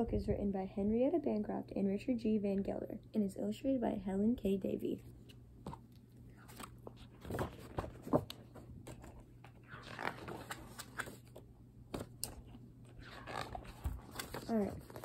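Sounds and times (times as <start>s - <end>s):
faint steady hum: 0.0s - 15.0s
book pages rustling: 5.2s - 15.0s.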